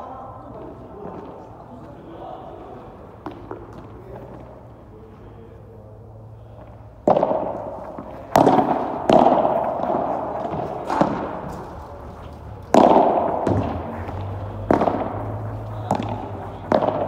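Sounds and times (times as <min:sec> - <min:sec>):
ball bouncing: 0:03.2 - 0:04.4, 0:07.0 - 0:17.0
racket striking ball: 0:07.0 - 0:17.0.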